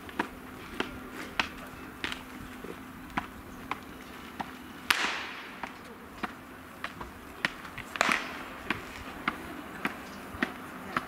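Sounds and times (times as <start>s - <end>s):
balls caught in gloves: 4.4s - 11.0s
baseball smacking into mitt: 4.4s - 11.0s.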